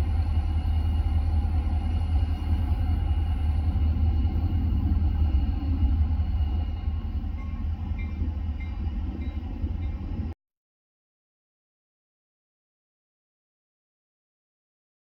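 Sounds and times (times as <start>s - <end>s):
diesel locomotive engine rumbling: 0.0s - 10.4s.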